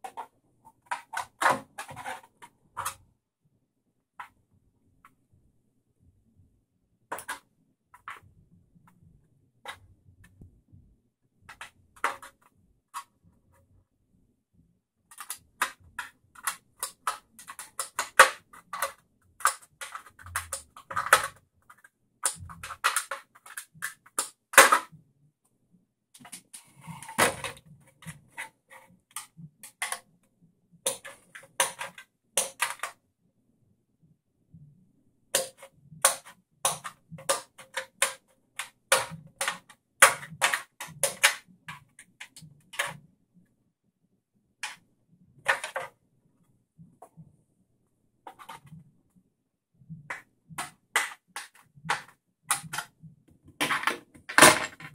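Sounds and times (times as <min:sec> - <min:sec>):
scissors snipping plastic: 0:15.1 - 0:21.4, 0:35.4 - 0:43.0.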